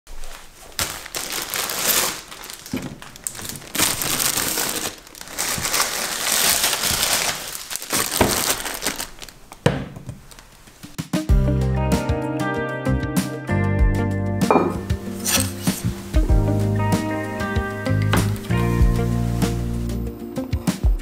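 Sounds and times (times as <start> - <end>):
plastic bag crinkling: 0.1 - 10.8, 15.0 - 20.0
wooden lid sliding open: 18.0 - 19.9.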